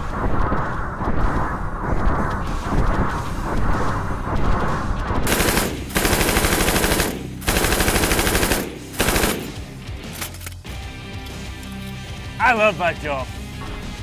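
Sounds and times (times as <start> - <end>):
machine gun firing bursts: 5.3 - 9.8.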